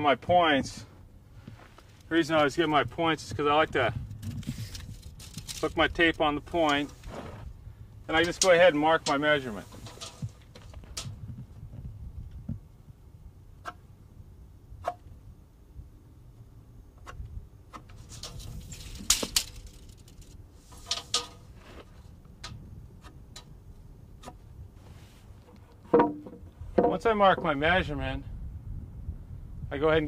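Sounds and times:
tape measure scraping: 4.2 - 5.8, 8.1 - 10.4, 17.9 - 21.9.

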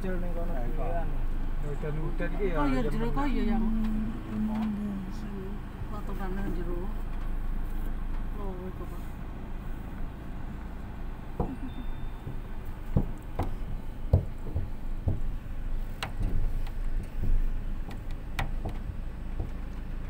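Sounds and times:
car rumble from inside cabin: 0.0 - 20.0
knocks and clicks: 11.4 - 20.0.

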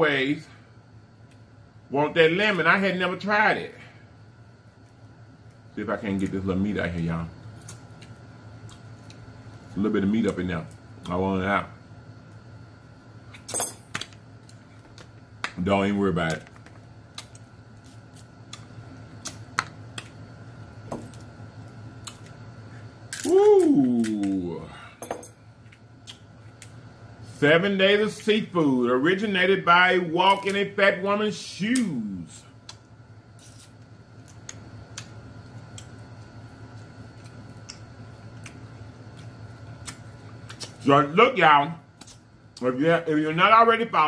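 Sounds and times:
steady low hum: 0.0 - 44.0
crab shell cracking: 16.3 - 20.2
person humming low: 23.2 - 24.9.

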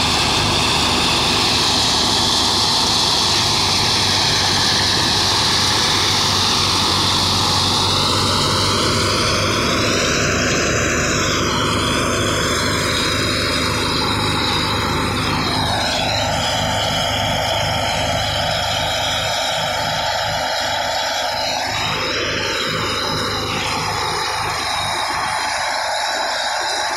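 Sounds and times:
thresher mechanical drone: 0.0 - 26.9
tractor engine humming: 0.0 - 26.9.

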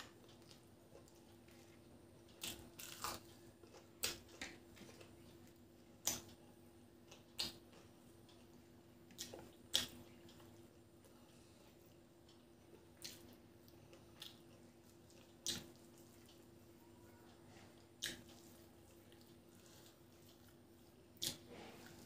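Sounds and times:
wet chewing and lip-smacking: 7.1 - 10.9, 11.8 - 16.7, 17.8 - 22.0.

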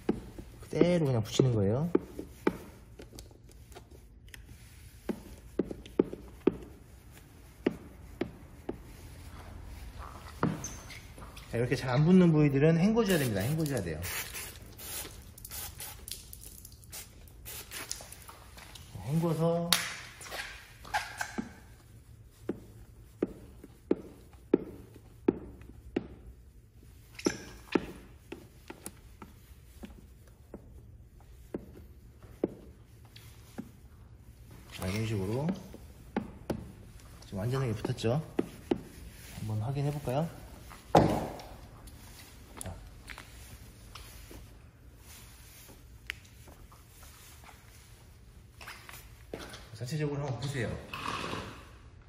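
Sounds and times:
squeegee swiping over wet film: 13.0 - 18.9.

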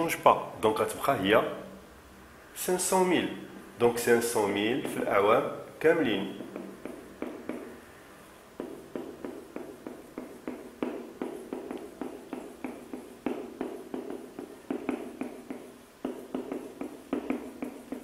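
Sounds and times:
marker writing on a whiteboard: 3.8 - 18.0.

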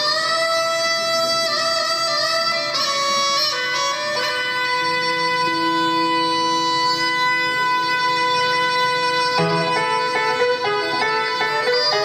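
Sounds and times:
wooden flute melody: 0.0 - 12.0
piano accompaniment: 9.3 - 12.0.

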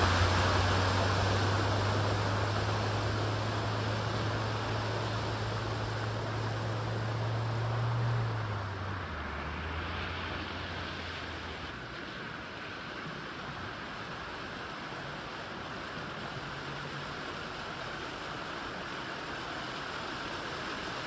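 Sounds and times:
van engine humming: 0.0 - 12.1
water spray rushing: 0.0 - 21.0.

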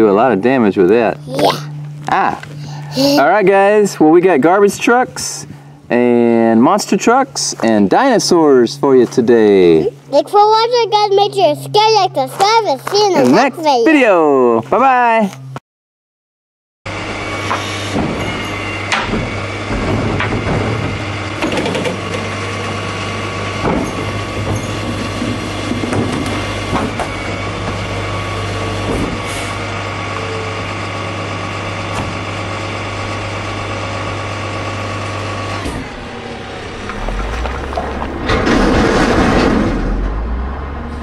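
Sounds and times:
garbage truck engine idling: 16.9 - 40.9
clunks and rattles: 17.9 - 22.8, 23.5 - 27.9, 28.8 - 29.3, 35.6 - 41.0.

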